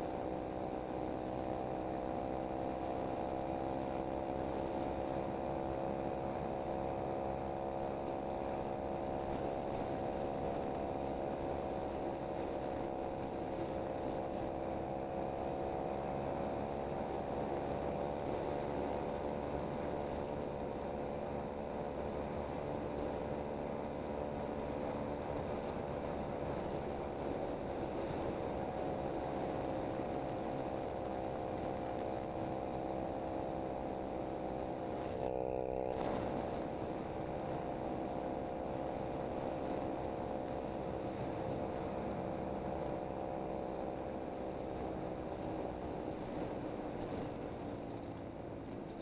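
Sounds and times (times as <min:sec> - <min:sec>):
motorbike engine cruising: 0:00.0 - 0:49.0.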